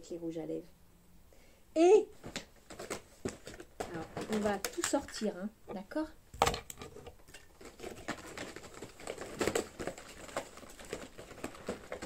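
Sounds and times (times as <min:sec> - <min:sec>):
cardboard box rustling: 0:02.2 - 0:05.0, 0:06.8 - 0:12.0
items clattering: 0:02.2 - 0:12.0.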